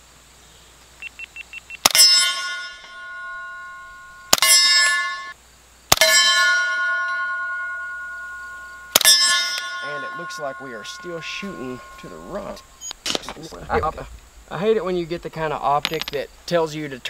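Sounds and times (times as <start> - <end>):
steel target ringing: 1.9 - 12.8
suppressed pistol shots: 4.3 - 4.6, 5.9 - 6.1, 8.9 - 9.2.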